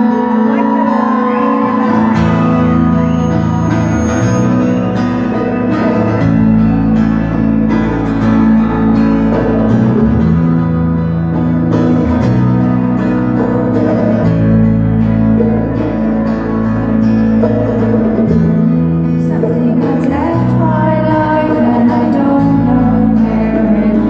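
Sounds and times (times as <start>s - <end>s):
electric bass notes: 0.0s - 24.0s
live rock band playing: 0.0s - 24.0s.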